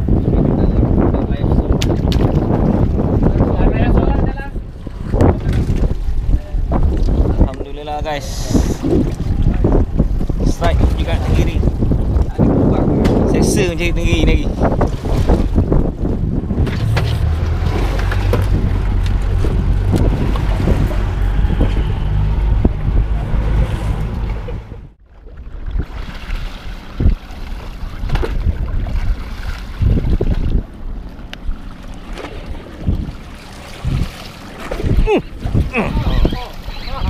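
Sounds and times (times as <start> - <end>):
wind buffeting microphone: 0.0 - 37.0
water sloshing around kayak: 14.5 - 37.0.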